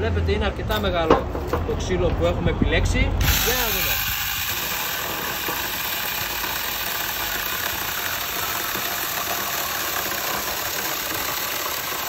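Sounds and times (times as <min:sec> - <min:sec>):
chainsaw cutting through log: 0:03.2 - 0:12.0.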